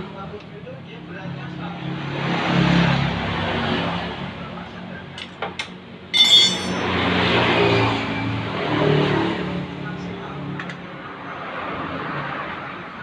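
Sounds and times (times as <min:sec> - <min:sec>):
metal tools clinking: 0:05.2 - 0:07.0
sharp metallic clank: 0:05.6 - 0:07.1.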